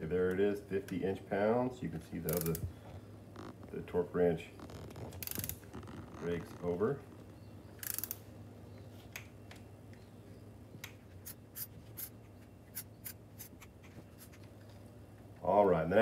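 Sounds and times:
torque wrench ratchet clicks: 2.3s - 2.6s, 5.2s - 5.5s, 7.8s - 8.2s
torque wrench sharp clicks: 2.3s - 2.6s, 7.8s - 8.2s.

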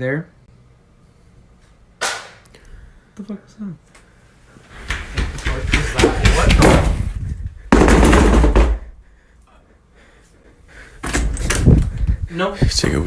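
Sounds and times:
heavy thumping footsteps: 4.7s - 9.1s
pounding: 4.8s - 9.0s.

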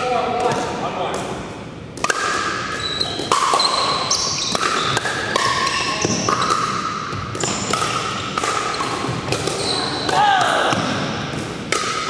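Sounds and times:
shoes squeaking on wooden floor: 2.8s - 4.9s.

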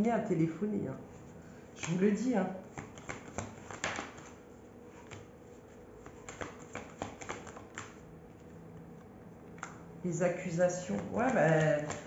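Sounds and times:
cards slapping on table: 1.8s - 2.1s, 2.7s - 4.4s, 5.0s - 5.3s, 6.0s - 8.0s, 10.9s - 12.0s.

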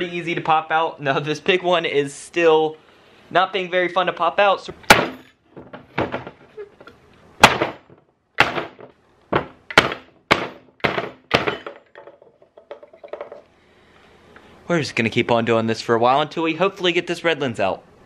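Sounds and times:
sharp knocks on workbench: 7.4s - 12.1s.

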